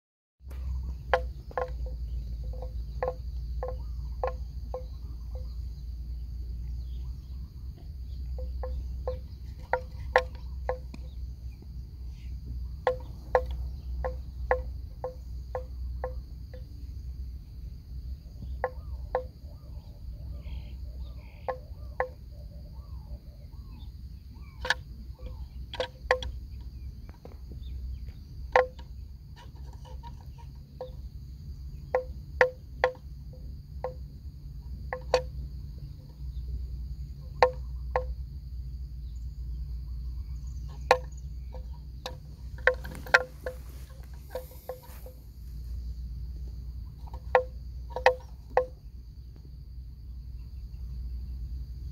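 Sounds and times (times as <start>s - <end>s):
low wind rumble: 0.4s - 51.9s
high-pitched insect drone: 0.5s - 51.9s
neck bell clanking: 40.6s - 45.3s.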